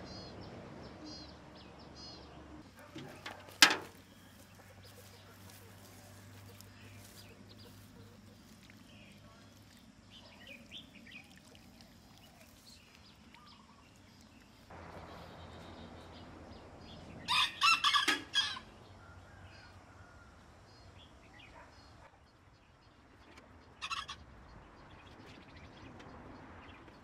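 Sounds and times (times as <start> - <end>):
rooster crowing: 17.3 - 20.5.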